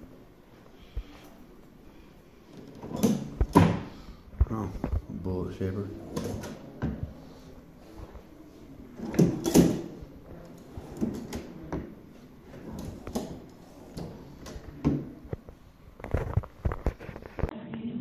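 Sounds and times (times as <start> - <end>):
wooden drawers sliding: 2.4 - 4.1, 5.8 - 15.6.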